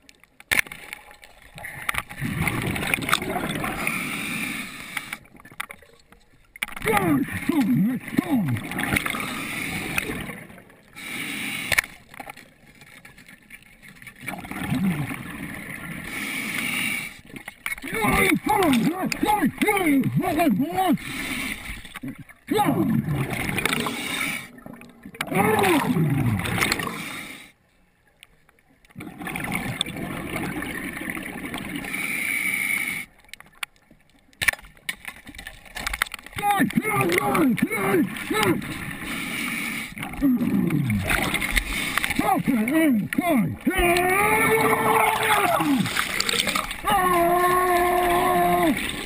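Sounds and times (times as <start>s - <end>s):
underwater gurgling and bubbles: 0.0s - 49.0s
breath bubbling underwater: 1.6s - 4.0s, 14.2s - 16.2s, 22.0s - 27.2s, 29.0s - 32.0s, 40.0s - 49.0s
faint clicks: 11.6s - 14.3s, 28.0s - 29.0s, 33.0s - 37.7s.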